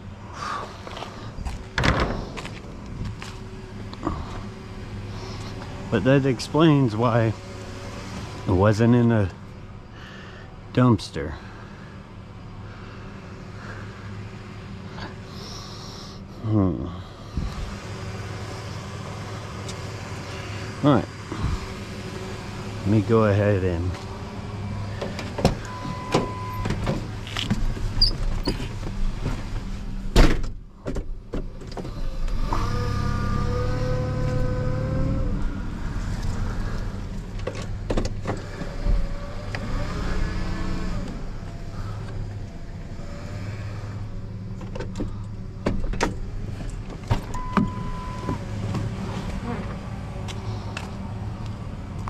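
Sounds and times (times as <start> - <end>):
car running with low hum: 0.0 - 52.0
car door slamming: 30.1 - 31.1
car chime beep: 47.4 - 48.4.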